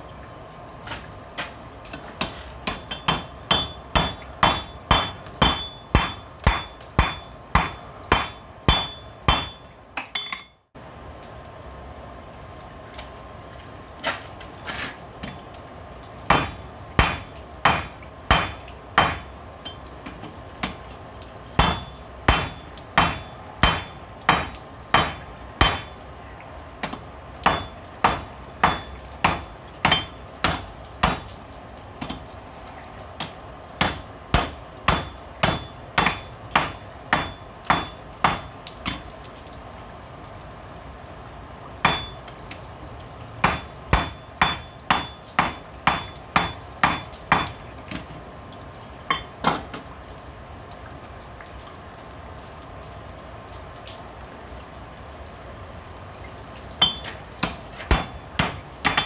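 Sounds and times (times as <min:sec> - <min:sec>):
hammer striking metal on anvil: 0:02.6 - 0:10.6, 0:16.3 - 0:19.8, 0:21.6 - 0:26.0, 0:27.4 - 0:31.4, 0:33.8 - 0:39.0, 0:41.9 - 0:42.2, 0:43.4 - 0:47.6, 0:57.9 - 0:59.0.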